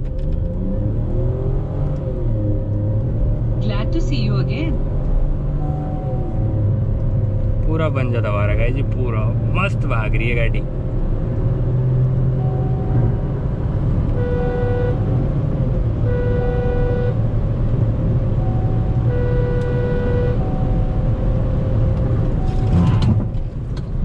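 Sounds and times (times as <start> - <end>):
car driving at high speed: 0.0 - 24.0
horn-like beeps: 5.6 - 6.5, 12.4 - 13.2, 14.1 - 15.1, 16.0 - 17.2, 18.4 - 21.0.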